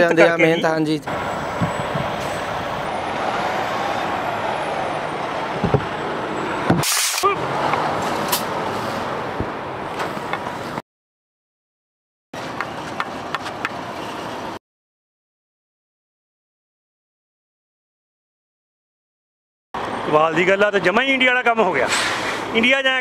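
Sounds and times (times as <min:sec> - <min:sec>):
diesel trucks running: 0:00.0 - 0:10.8, 0:19.8 - 0:23.0
air brake hiss: 0:21.9 - 0:22.5.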